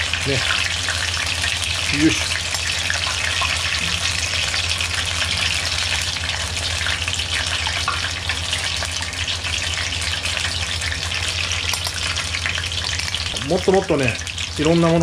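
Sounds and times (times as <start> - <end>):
deep-frying sizzle in oil: 0.0 - 15.0
low steady hum: 0.0 - 15.0.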